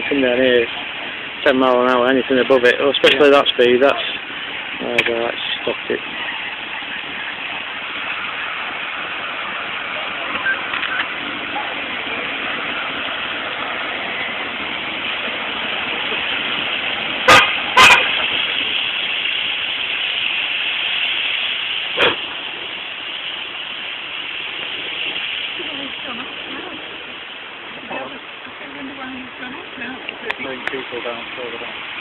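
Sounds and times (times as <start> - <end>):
steady hiss: 0.0 - 32.0
vehicle horn toots: 17.2 - 18.4.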